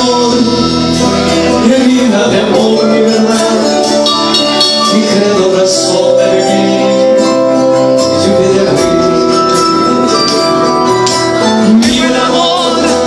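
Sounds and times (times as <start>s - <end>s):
amplified band music: 0.0s - 13.0s
man singing: 0.0s - 13.0s
jingling percussion: 3.7s - 5.5s.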